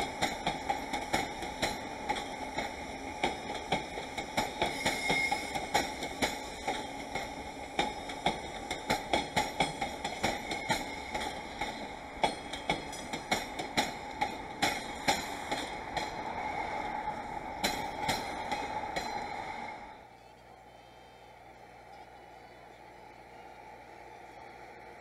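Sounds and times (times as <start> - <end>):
train wheels clacking over rail joints: 0.0 - 19.8
train rumble: 0.0 - 25.0.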